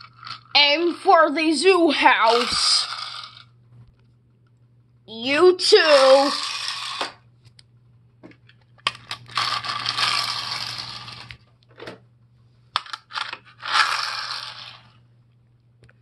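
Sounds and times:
toy wheels rattling on concrete: 0.0s - 1.1s, 2.0s - 3.5s, 5.6s - 7.2s, 8.8s - 11.4s, 12.8s - 15.0s.

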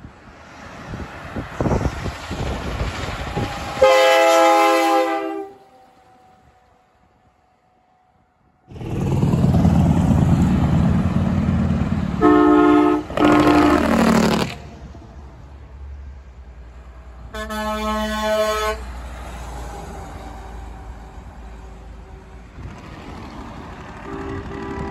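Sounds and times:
truck diesel engines passing: 0.0s - 24.9s
truck air horn blasts: 3.8s - 5.8s, 12.1s - 14.6s, 17.3s - 19.0s, 24.0s - 24.9s.

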